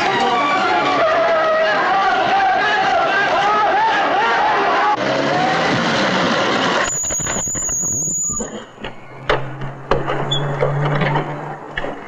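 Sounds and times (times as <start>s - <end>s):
brakes squealing: 5.0s - 12.0s.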